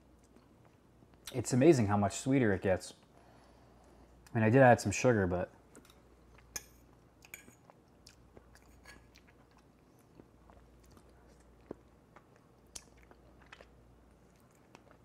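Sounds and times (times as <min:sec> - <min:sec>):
faint chewing: 0:00.1 - 0:01.4, 0:05.7 - 0:15.0.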